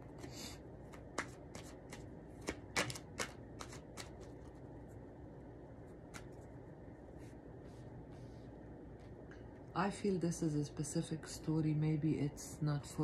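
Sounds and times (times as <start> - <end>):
cards clicking and tapping: 0.0 - 4.6, 6.0 - 6.4
faint room noise: 0.0 - 13.0.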